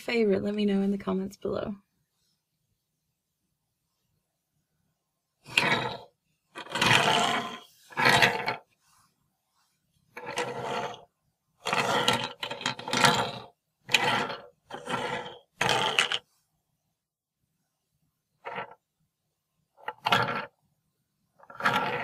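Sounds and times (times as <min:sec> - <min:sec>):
toy planes rolling on wooden shelf: 0:05.4 - 0:08.7, 0:10.1 - 0:16.3, 0:18.4 - 0:18.8, 0:19.8 - 0:20.6, 0:21.4 - 0:22.0.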